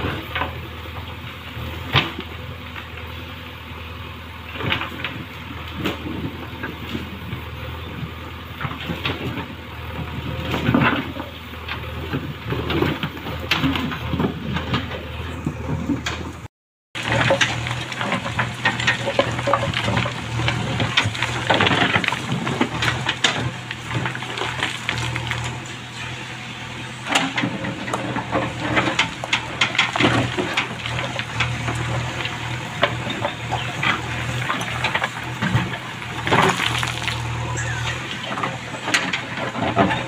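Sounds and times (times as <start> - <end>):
diesel engine running: 0.0 - 40.0
rocks knocking against bucket: 17.0 - 25.6, 28.8 - 40.0
mud sloshing: 34.2 - 39.8.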